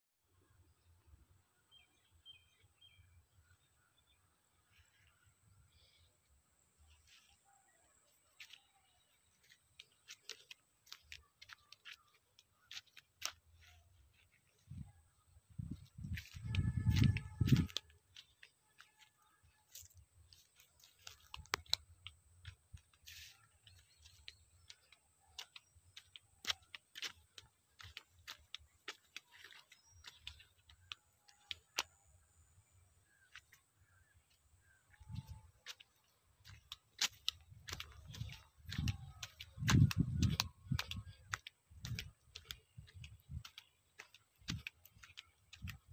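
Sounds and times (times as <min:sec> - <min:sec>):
faint sharp clicks: 0:09.4 - 0:13.7, 0:19.7 - 0:32.2, 0:33.1 - 0:45.9.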